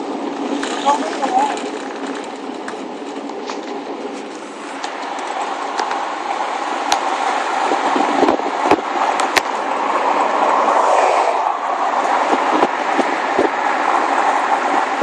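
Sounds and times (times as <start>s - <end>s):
road and tyre noise: 0.0s - 15.0s.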